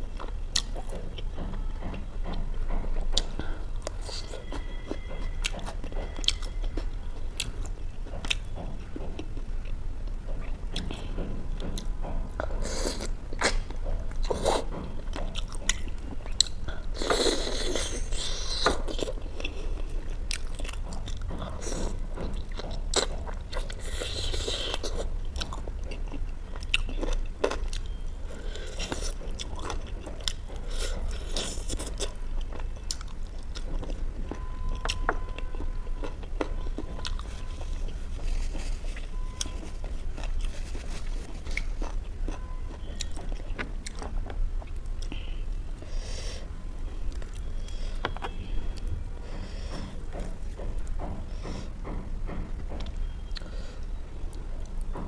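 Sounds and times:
chewing with mouth clicks: 0.1 - 1.3, 3.1 - 45.9.

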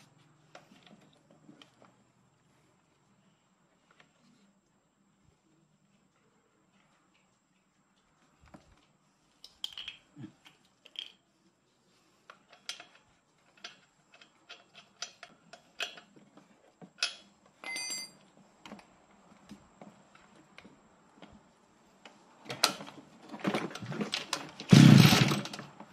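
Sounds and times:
clicks and taps of small parts: 9.4 - 11.2
rattling burst: 24.7 - 25.5.

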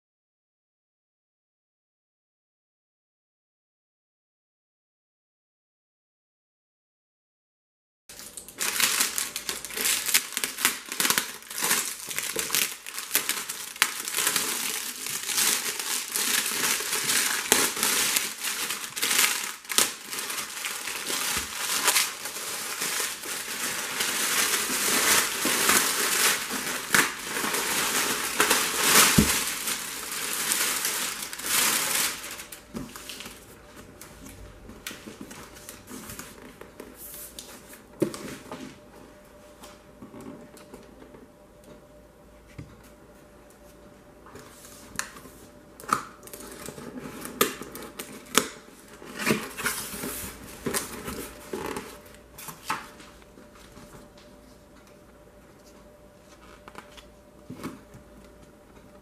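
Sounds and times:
plastic wrap crinkling: 8.1 - 33.6, 45.9 - 53.5.

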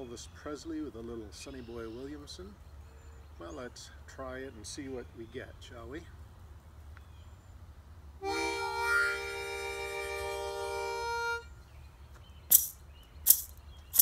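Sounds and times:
harmonica chord: 8.2 - 11.5
sharp percussive hits: 12.5 - 14.0.

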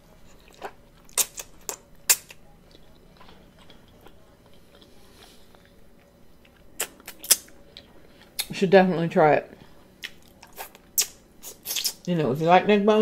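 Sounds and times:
soft chewing: 0.0 - 8.5, 9.6 - 12.1
wet mouth smacks and clicks: 11.0 - 12.0.

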